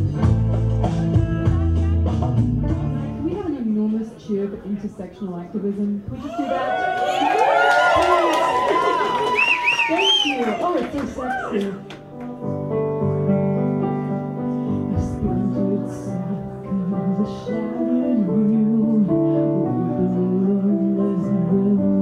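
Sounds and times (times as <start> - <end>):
piano chords: 0.0 - 3.9, 10.9 - 22.0.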